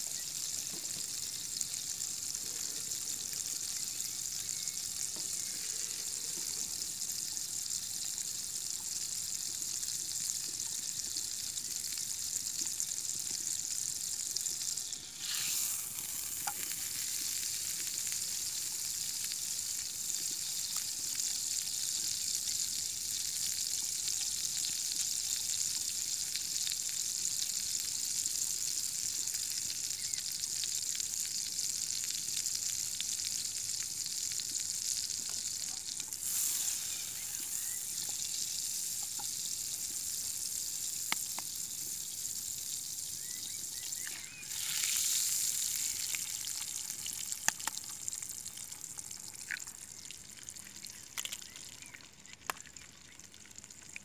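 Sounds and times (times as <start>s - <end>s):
eggs sizzling in a pan: 0.0s - 54.0s.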